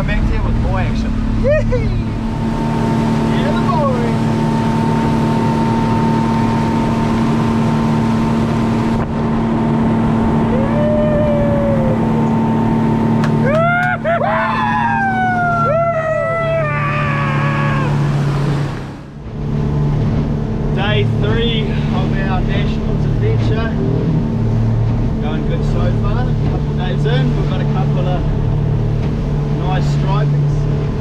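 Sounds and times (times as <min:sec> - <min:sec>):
motorboat engine drone: 0:00.0 - 0:31.0
water rushing past hull: 0:00.0 - 0:31.0
people whooping: 0:10.5 - 0:12.3, 0:13.4 - 0:18.1.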